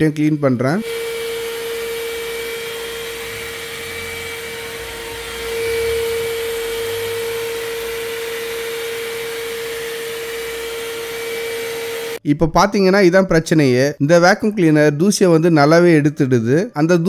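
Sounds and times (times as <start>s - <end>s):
handheld vacuum cleaner running: 0.0s - 12.2s.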